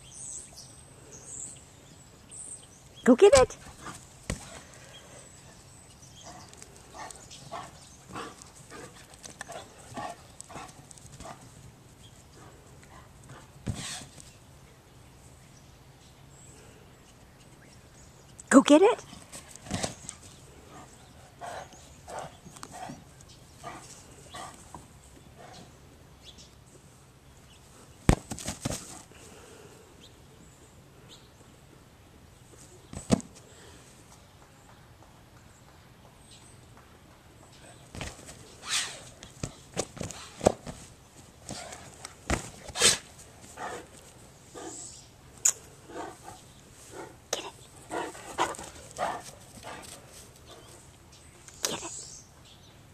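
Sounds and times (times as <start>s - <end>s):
dog footfalls on grass: 28.1s - 29.0s, 39.2s - 43.6s.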